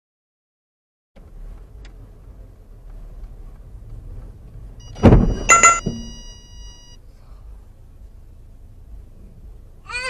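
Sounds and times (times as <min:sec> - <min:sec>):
car collision impact: 0:04.9 - 0:06.3.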